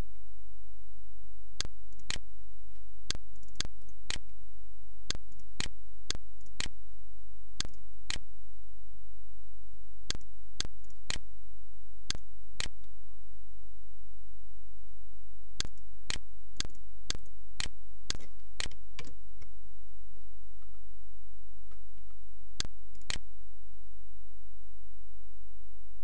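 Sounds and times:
low hum: 0:00.0 - 0:26.0
computer clicks: 0:01.6 - 0:02.2, 0:03.1 - 0:04.3, 0:05.1 - 0:06.8, 0:10.1 - 0:11.2, 0:12.1 - 0:12.9, 0:15.6 - 0:19.5, 0:22.6 - 0:23.2.

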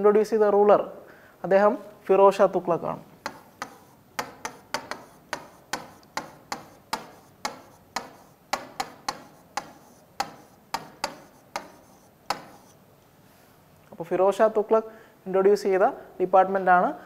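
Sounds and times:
marker tapping on whiteboard: 0:03.2 - 0:12.8.

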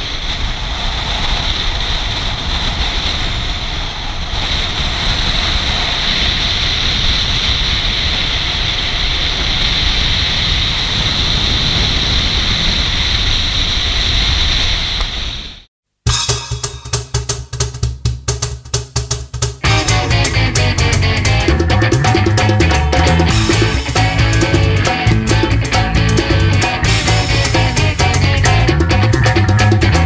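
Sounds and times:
wind buffeting microphone: 0:00.0 - 0:15.6.

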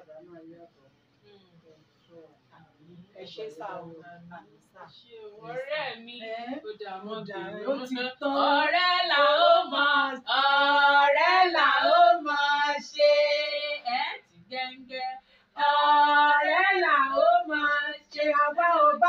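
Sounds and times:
women singing unaccompanied: 0:05.4 - 0:19.0.

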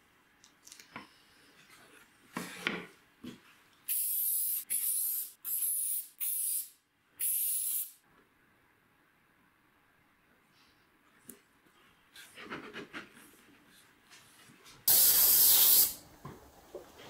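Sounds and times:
aerosol spray hissing: 0:14.9 - 0:16.0.

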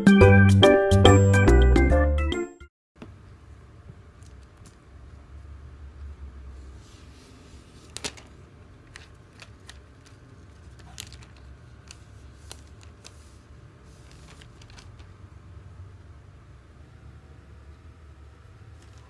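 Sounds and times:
plastic packaging crinkling: 0:07.8 - 0:13.3, 0:13.9 - 0:15.2.

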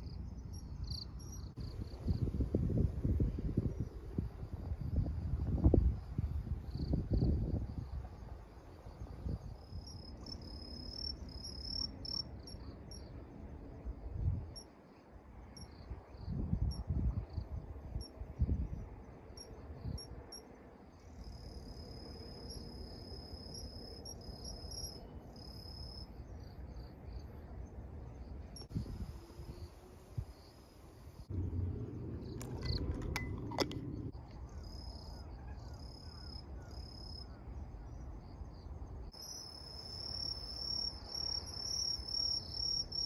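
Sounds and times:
insects chirping in trills: 0:00.0 - 0:02.5, 0:03.5 - 0:43.0
wind rumbling on microphone: 0:00.0 - 0:10.3, 0:13.1 - 0:14.6, 0:15.3 - 0:20.3, 0:26.6 - 0:36.7.

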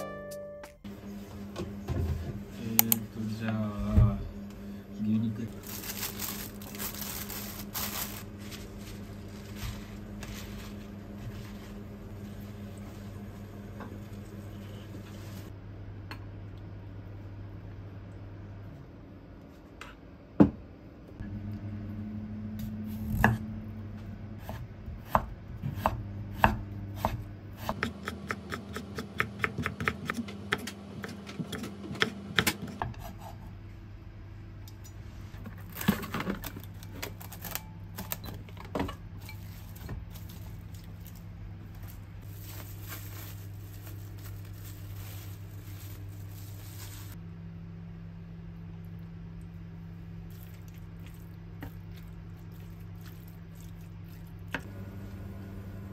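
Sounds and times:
steady low hum: 0:00.8 - 0:55.9
knife chopping on wooden board: 0:24.5 - 0:33.2.

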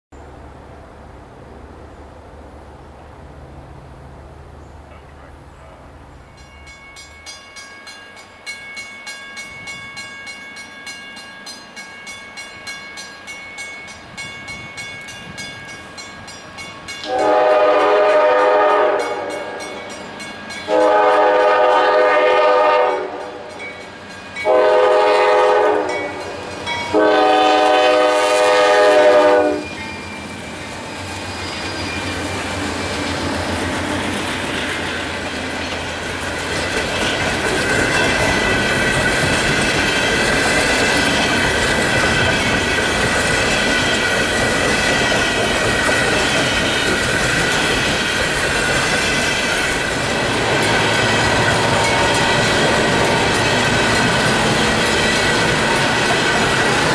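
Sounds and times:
train wheels on rails: 0:00.2 - 0:56.9
crossing bell ringing: 0:06.1 - 0:33.2, 0:34.9 - 0:56.9
locomotive rumble: 0:14.2 - 0:56.9
train horn blasts: 0:17.0 - 0:19.8, 0:20.7 - 0:23.6, 0:24.4 - 0:29.8.

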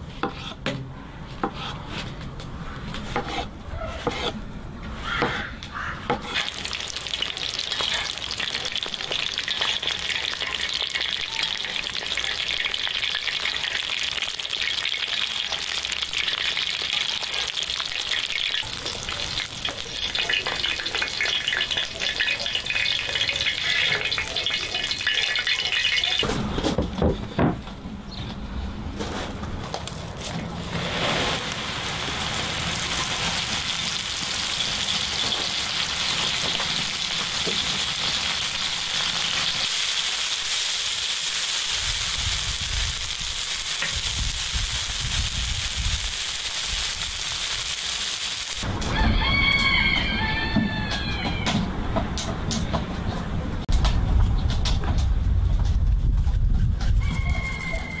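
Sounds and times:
steaks sizzling in butter: 0:06.3 - 0:26.2, 0:30.9 - 0:48.7.

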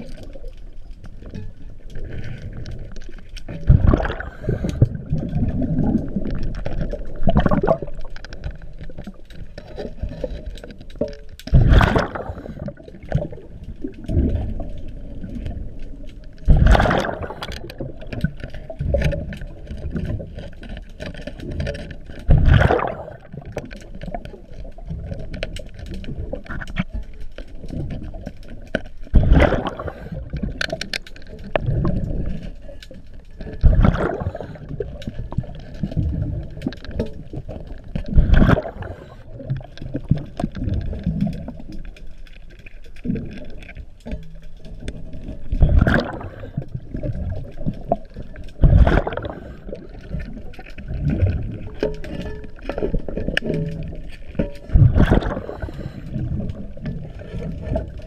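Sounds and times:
exhale bubbles rushing: 0:03.7 - 0:06.3, 0:11.5 - 0:13.4, 0:16.5 - 0:17.7, 0:22.3 - 0:23.5, 0:29.2 - 0:30.4, 0:33.6 - 0:34.8, 0:38.1 - 0:39.2, 0:48.6 - 0:49.9, 0:54.7 - 0:56.8.

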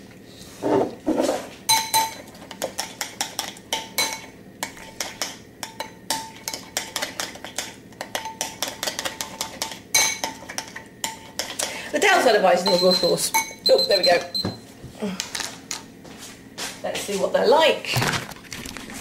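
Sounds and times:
spoon clinking against glass bowl: 0:01.7 - 0:02.2, 0:03.7 - 0:04.8, 0:09.6 - 0:10.4, 0:12.6 - 0:14.5.

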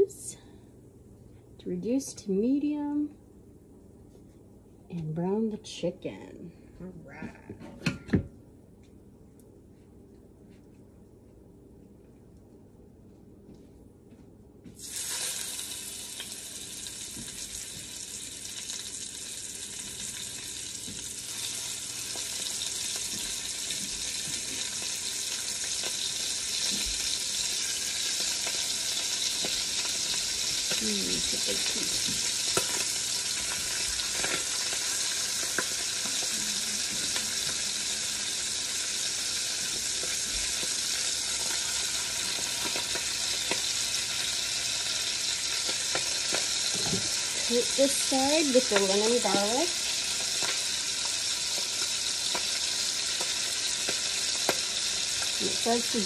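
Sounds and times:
chicken sizzling in hot fat: 0:00.0 - 0:00.4, 0:14.8 - 0:56.0.

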